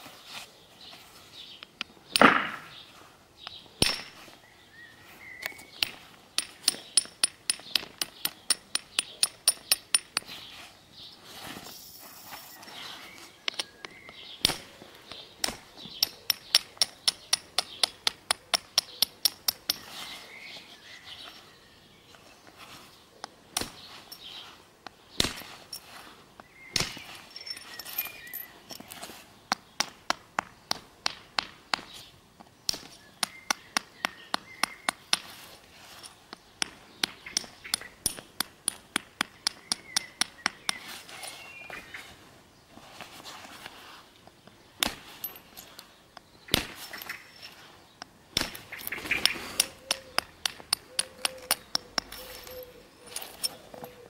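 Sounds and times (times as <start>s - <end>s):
loud strikes on stone: 2.1s - 2.8s
sharp taps on stone: 5.4s - 10.3s, 13.5s - 19.9s, 29.5s - 32.0s, 32.7s - 35.3s, 36.3s - 40.8s, 48.0s - 52.6s.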